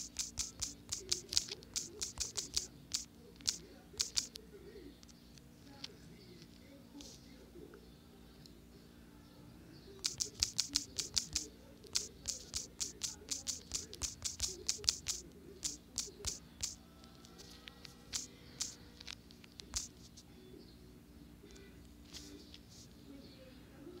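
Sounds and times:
touchscreen keyboard taps: 0.0s - 4.4s, 10.0s - 16.8s, 18.1s - 20.0s.

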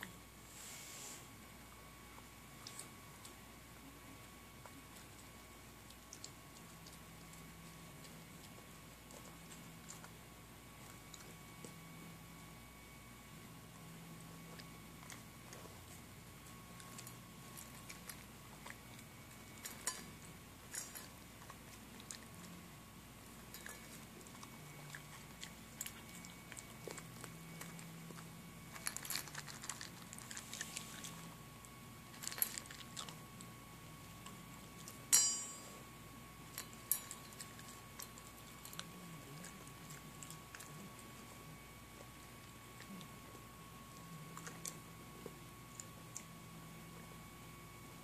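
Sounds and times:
puppy crunching kibble: 1.6s - 47.8s
clink on metal bowl: 35.1s - 35.7s.

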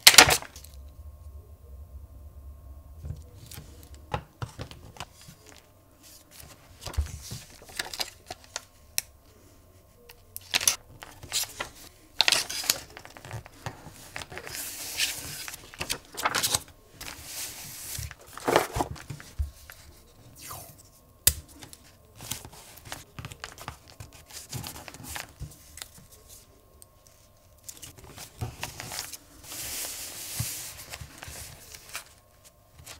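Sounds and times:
paper rustling: 0.0s - 0.7s, 3.2s - 8.8s, 10.4s - 32.9s.

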